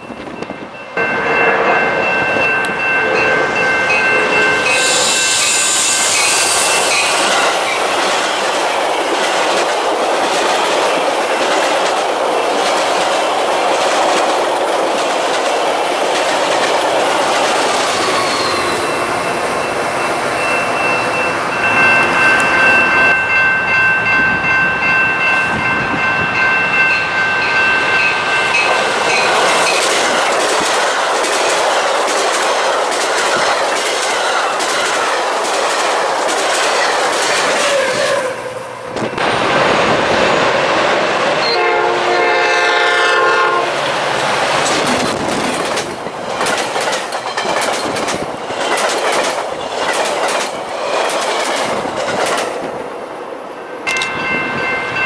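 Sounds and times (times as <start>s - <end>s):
crossing warning bell ringing: 0.0s - 7.8s, 17.6s - 30.3s, 53.8s - 55.0s
train wheels rumbling on rail: 0.0s - 55.0s
clickety-clack over rail joints: 8.0s - 18.4s, 28.6s - 38.3s, 44.2s - 52.9s, 53.8s - 55.0s.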